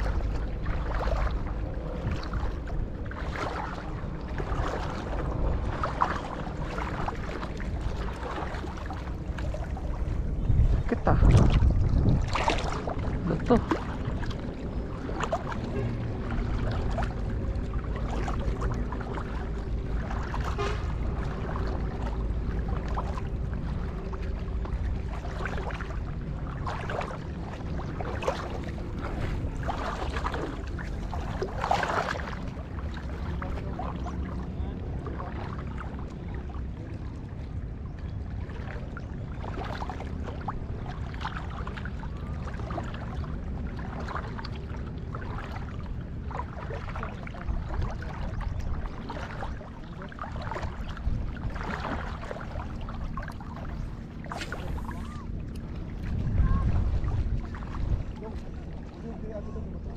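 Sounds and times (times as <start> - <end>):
splashes and knocks: 0.0 - 24.0, 24.6 - 34.2, 39.4 - 58.4
boat motor humming: 0.0 - 59.9
wind: 0.0 - 59.9.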